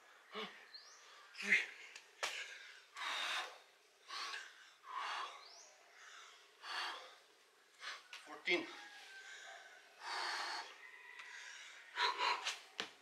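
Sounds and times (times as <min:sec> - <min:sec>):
person breathing hard: 0:02.2 - 0:08.1, 0:09.2 - 0:12.7.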